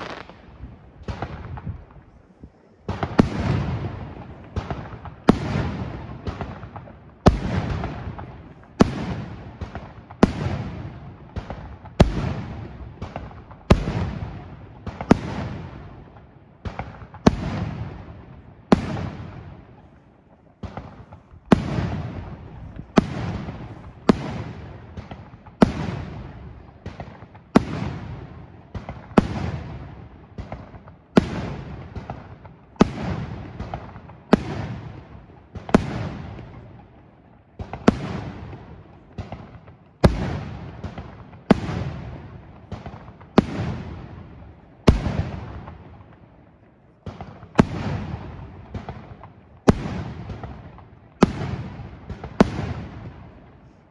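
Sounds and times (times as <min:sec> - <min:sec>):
firework shells bursting: 0:00.0 - 0:02.0.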